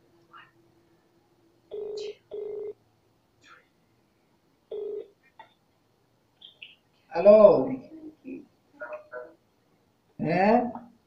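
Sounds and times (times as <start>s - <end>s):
phone ringback tone beeps: 1.7s - 2.8s, 4.7s - 5.1s.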